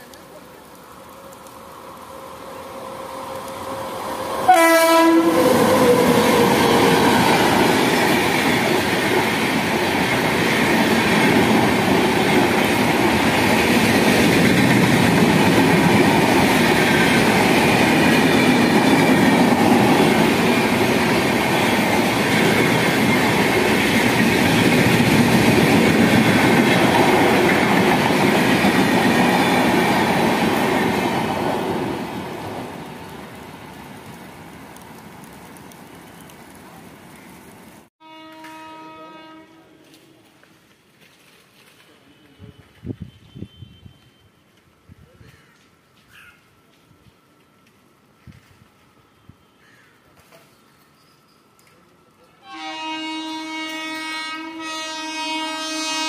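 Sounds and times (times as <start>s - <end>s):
train coaches rumbling and clattering: 2.6s - 37.6s
train horn blast: 4.4s - 6.9s, 38.0s - 40.4s, 42.0s - 44.4s, 52.4s - 56.0s.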